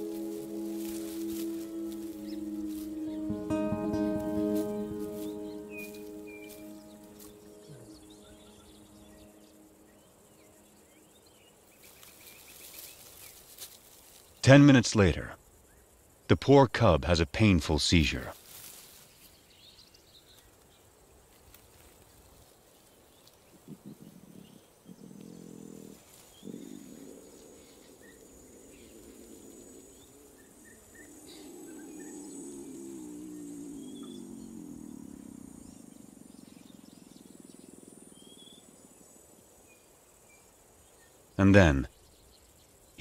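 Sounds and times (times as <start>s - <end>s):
lion cub moaning: 23.6s - 37.8s.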